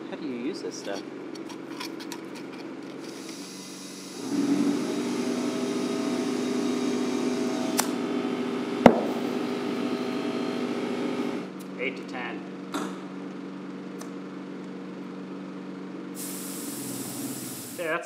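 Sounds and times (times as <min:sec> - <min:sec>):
electric motor humming: 0:02.9 - 0:11.5
sharp knock: 0:08.9 - 0:09.2.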